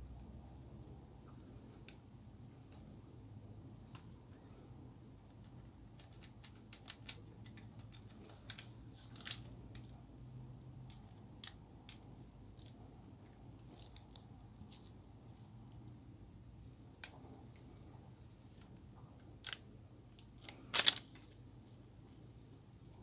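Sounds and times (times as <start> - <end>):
low steady hum: 0.0 - 23.0
plastic parts clicking and tapping: 5.3 - 10.0, 20.2 - 21.4.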